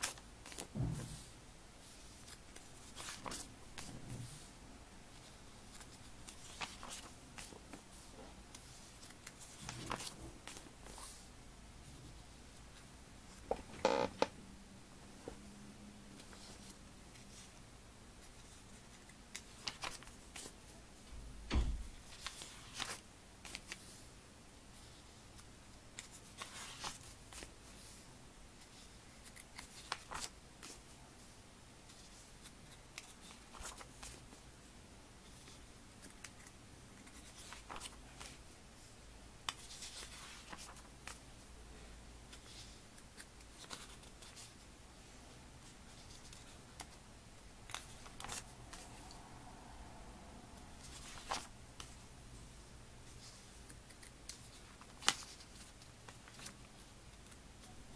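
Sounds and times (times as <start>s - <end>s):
paper pages rustling: 0.0s - 4.5s, 5.1s - 11.2s, 18.2s - 20.6s, 22.0s - 24.0s, 26.0s - 28.0s, 28.6s - 30.9s, 31.9s - 34.4s, 35.3s - 38.9s, 39.5s - 41.3s, 42.3s - 44.6s, 47.7s - 49.1s, 50.8s - 52.0s, 53.1s - 57.4s
page snapping: 37.4s - 38.3s.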